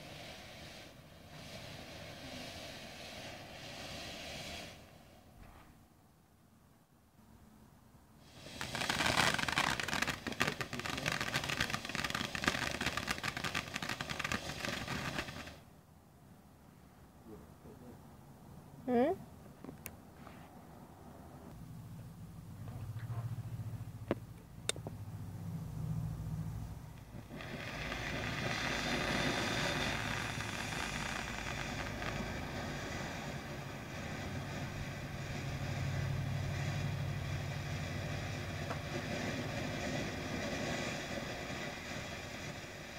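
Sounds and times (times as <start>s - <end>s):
firework fountain hissing and crackling: 0.0s - 5.6s, 8.2s - 15.7s, 26.8s - 42.9s.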